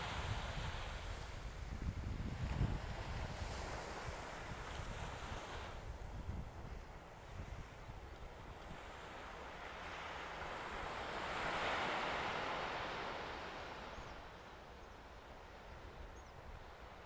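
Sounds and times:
wind rumbling on microphone: 0.0s - 9.2s
small waves lapping on sand: 0.0s - 14.4s.

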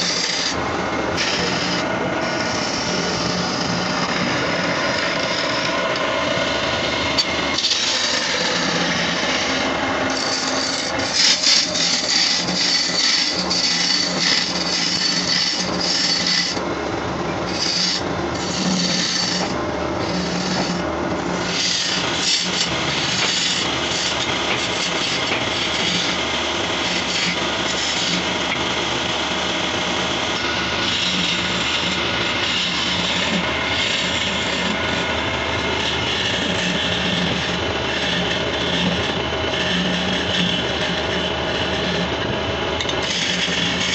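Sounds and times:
chisel scraping wood on lathe: 0.0s - 0.6s, 1.2s - 16.6s, 17.4s - 43.9s
lathe humming: 0.0s - 43.9s.

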